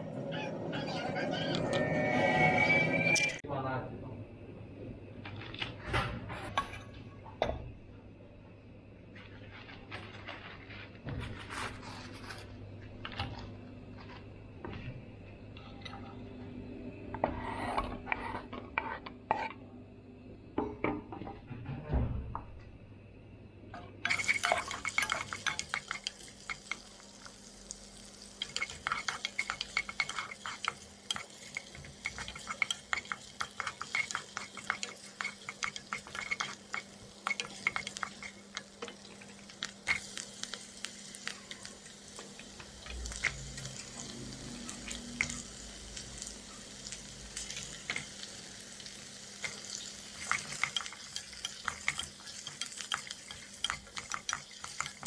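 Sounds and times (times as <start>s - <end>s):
wooden spoon scraping a pot: 17.2s - 19.6s, 24.0s - 26.8s, 28.4s - 40.1s, 49.4s - 55.0s
onions frying sizzle: 24.0s - 55.0s.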